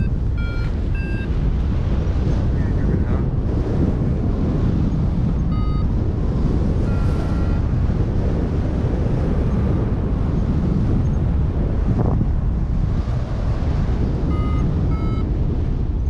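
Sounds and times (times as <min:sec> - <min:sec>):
variometer beeps: 0:00.0 - 0:01.4, 0:05.5 - 0:06.0, 0:06.8 - 0:07.8, 0:14.2 - 0:15.3
wind rushing over microphone: 0:00.0 - 0:16.0.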